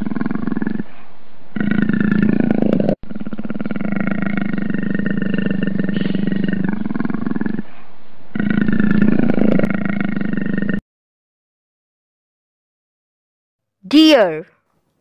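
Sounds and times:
leopard growling: 0.0 - 10.8.

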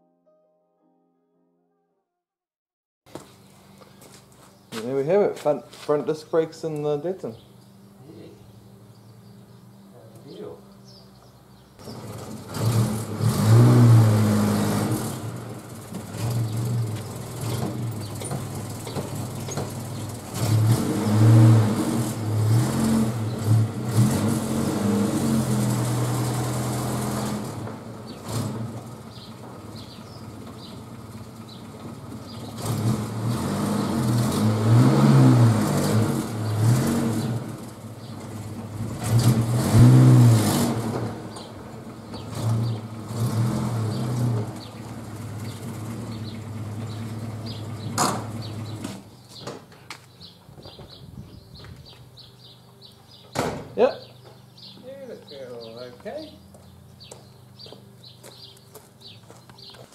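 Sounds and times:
car engine revving and idling: 11.8 - 49.1.

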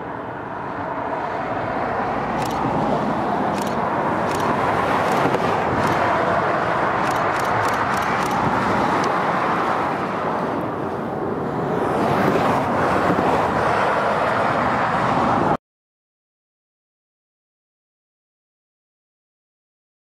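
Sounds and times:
passing road traffic: 0.0 - 15.6.

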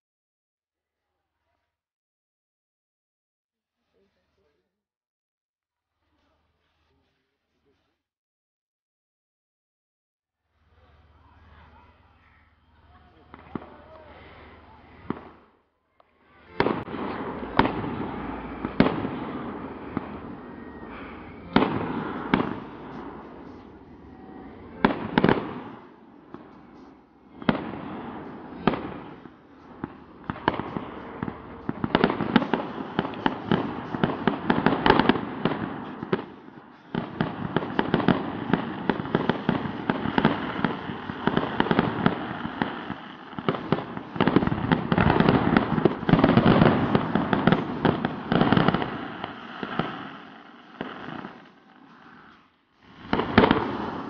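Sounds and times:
fireworks crackling and popping: 10.6 - 54.0
firework bangs: 11.0 - 15.6, 16.2 - 54.0.

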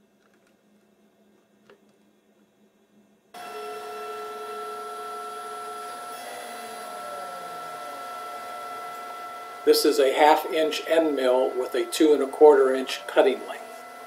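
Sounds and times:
cnc router whine: 3.4 - 14.0.

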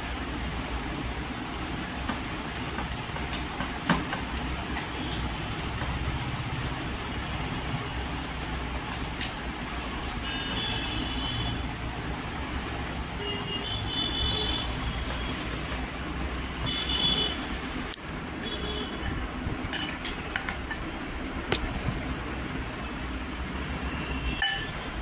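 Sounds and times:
road traffic: 0.0 - 25.0
spoon clinking on glass bowl: 18.2 - 20.8, 24.4 - 24.8.

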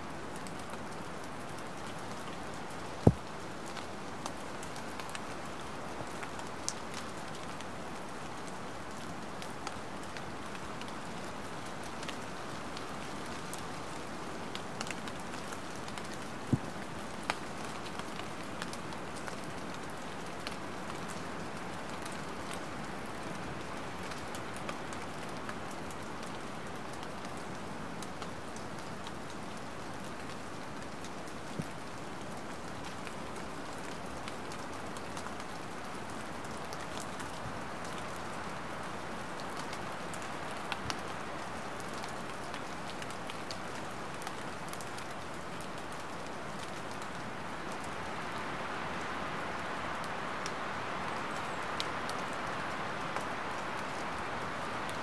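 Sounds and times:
light rain pattering: 0.0 - 55.0
sharp raindrops landing: 3.0 - 5.2.

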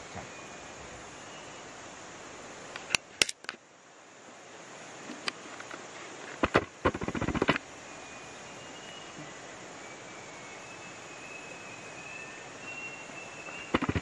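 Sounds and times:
sharp knocks or clicks: 6.4 - 7.6, 13.7 - 14.0.

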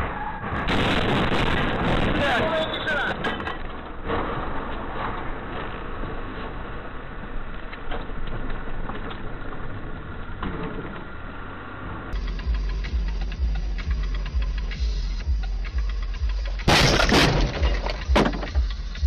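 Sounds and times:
car engine and road noise: 0.0 - 19.0
music with heavy bass beat: 12.2 - 19.0.

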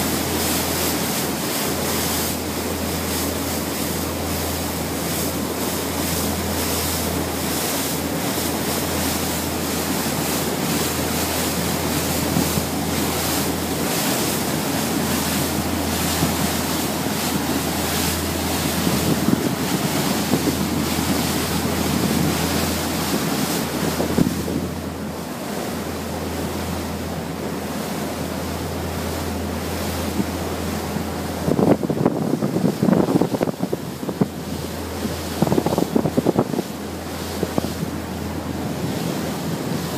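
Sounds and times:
low engine drone: 0.0 - 39.9
water rushing past hull: 0.0 - 39.9
wind on microphone: 8.0 - 25.2, 29.4 - 39.9.

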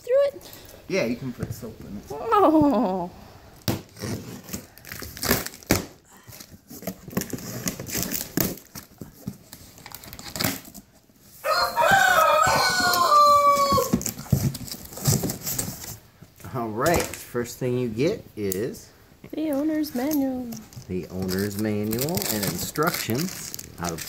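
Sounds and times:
cardboard packaging rustling: 3.8 - 16.2, 19.7 - 24.0
rooster crowing: 11.4 - 14.1.

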